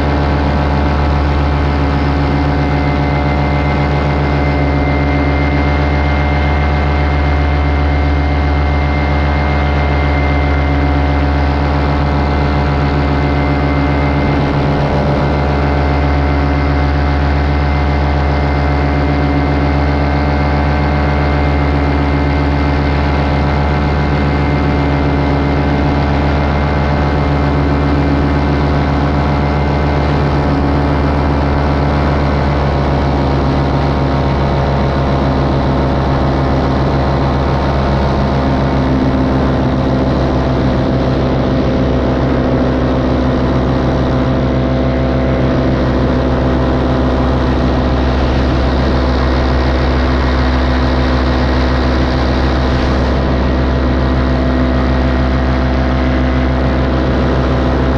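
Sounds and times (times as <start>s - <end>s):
light aircraft engine and propeller: 0.0s - 57.9s.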